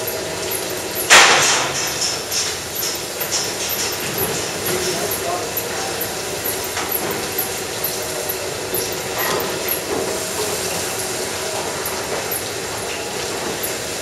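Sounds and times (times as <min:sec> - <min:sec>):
pulsators clicking and hissing: 0:00.0 - 0:14.0.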